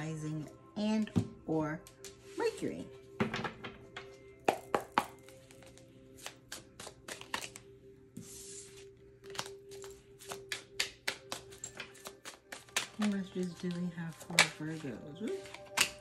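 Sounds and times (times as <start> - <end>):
soft background music: 0.0 - 16.0
cards being shuffled: 4.5 - 7.7, 8.3 - 16.0.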